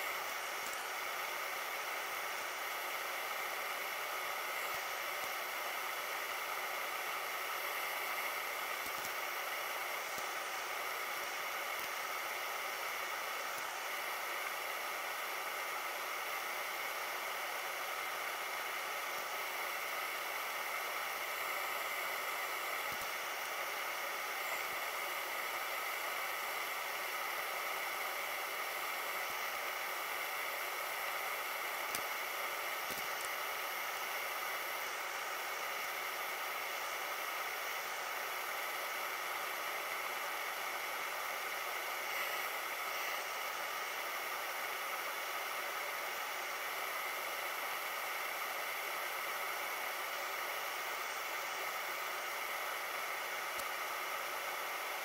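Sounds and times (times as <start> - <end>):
faint steady tones: 0.0 - 55.0
steady hiss: 0.0 - 55.0.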